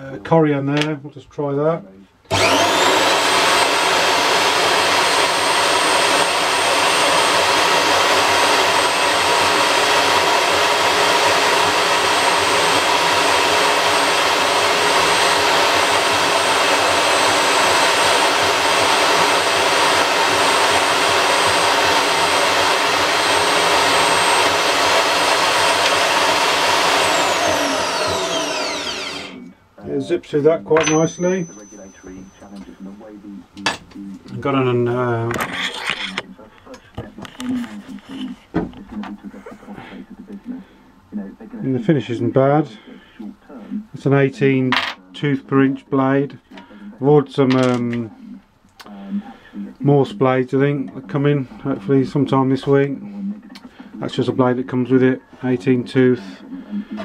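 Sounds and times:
bandsaw cutting: 2.3s - 29.5s, 30.7s - 32.6s.

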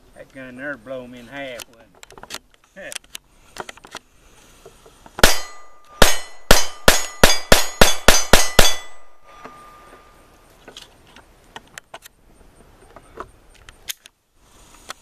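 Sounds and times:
pistol shots: 5.2s - 9.0s
steel gong target ringing: 5.2s - 10.2s.

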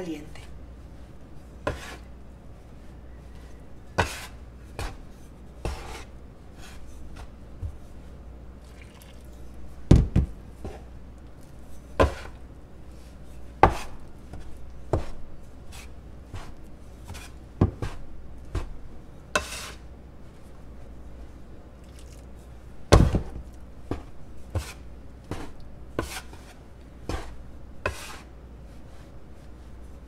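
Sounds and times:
dough scraper knocking on countertop: 13.6s - 13.9s, 17.6s - 18.8s, 22.9s - 26.2s.

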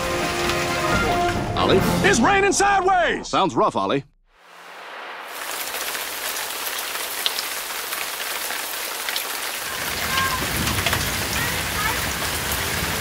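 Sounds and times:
heavy rain hissing: 4.4s - 13.0s
hailstones ticking: 5.3s - 13.0s.

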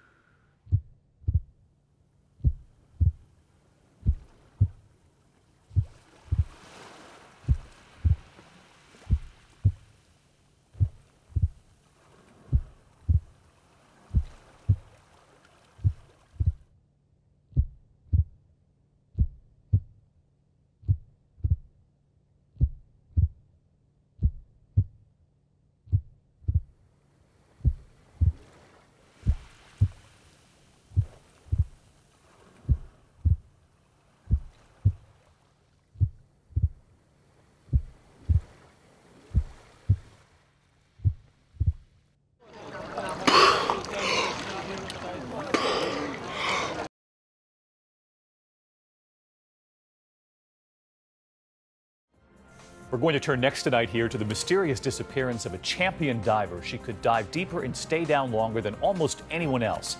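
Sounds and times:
slow heartbeat thumps: 0.6s - 1.6s, 2.4s - 3.3s, 4.0s - 4.8s, 5.7s - 6.7s, 7.4s - 8.4s, 9.0s - 9.9s, 10.8s - 11.7s, 12.5s - 13.4s, 14.1s - 14.9s, 15.8s - 16.7s, 17.5s - 18.4s, 19.1s - 20.0s, 20.8s - 21.8s, 22.5s - 23.5s, 24.2s - 25.1s, 25.8s - 26.8s, 27.6s - 28.5s, 29.2s - 30.1s, 30.9s - 31.8s, 32.6s - 33.6s, 34.2s - 35.1s, 36.0s - 36.9s, 37.7s - 38.6s, 39.3s - 40.2s, 41.0s - 41.9s.

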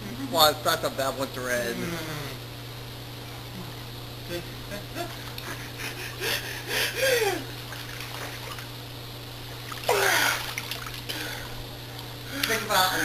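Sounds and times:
person crying out: 6.2s - 7.5s, 9.9s - 10.5s
water splashing in a pool: 7.6s - 8.7s, 9.6s - 11.5s.

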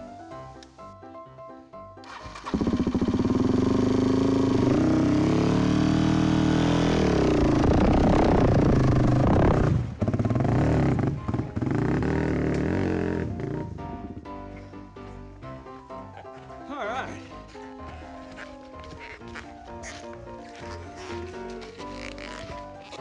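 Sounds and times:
dirt bike revving: 2.4s - 13.8s.

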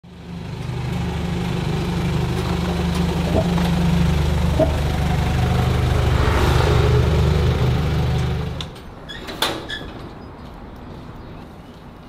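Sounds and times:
truck engine idling: 0.1s - 8.8s.

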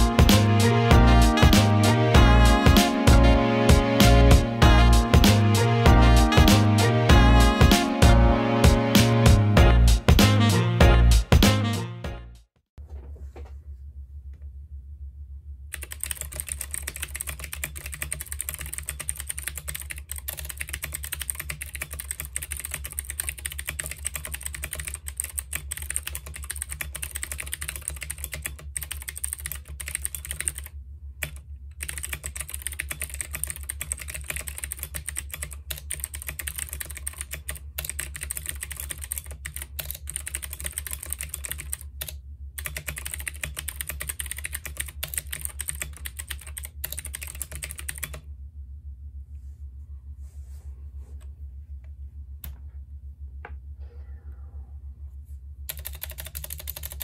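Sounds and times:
fast typing on clicky keyboard: 15.7s - 48.2s, 55.7s - 57.0s.

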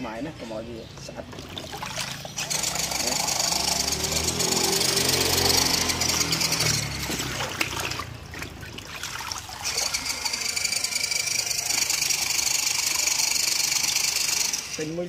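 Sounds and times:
water sloshing in plastic tub: 0.8s - 3.2s, 4.2s - 10.2s.

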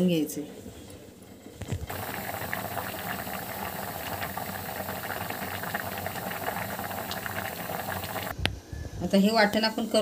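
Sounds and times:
broth boiling with pops: 1.6s - 8.4s.

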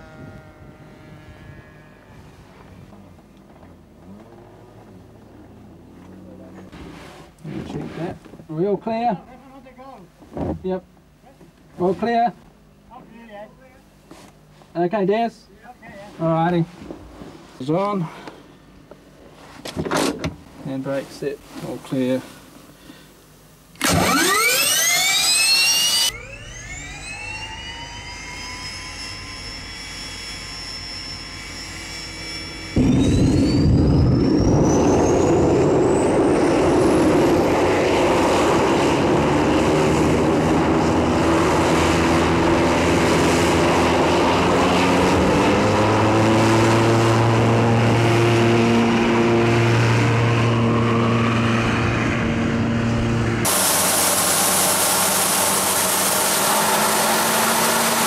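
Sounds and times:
turbine whine: 0.0s - 58.0s
jet engine roar: 23.8s - 58.0s.

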